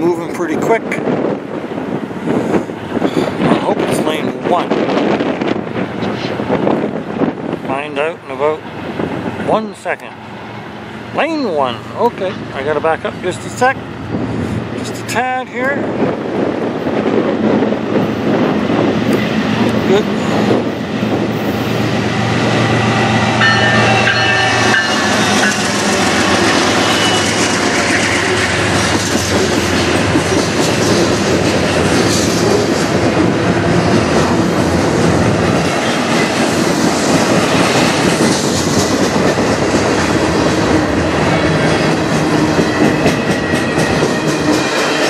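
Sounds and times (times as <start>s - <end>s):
diesel locomotive engine drone: 0.0s - 45.0s
high squeal: 23.4s - 28.5s.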